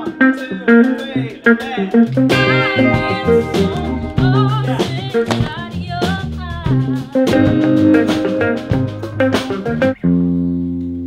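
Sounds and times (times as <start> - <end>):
drum kit: 0.0 - 10.2
bass guitar: 0.0 - 11.0
electric guitars: 0.0 - 11.0
woman singing: 2.5 - 8.4.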